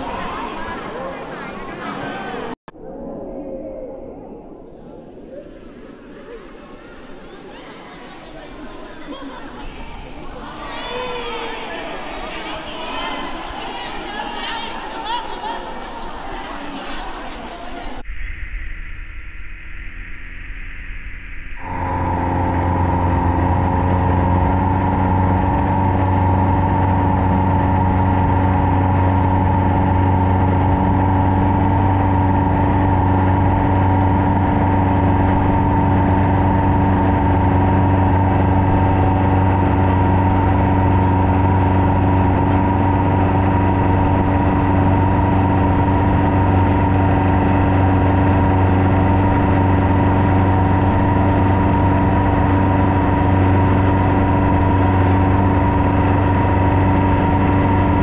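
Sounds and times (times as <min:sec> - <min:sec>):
boat engine droning: 0:21.6 - 0:58.0.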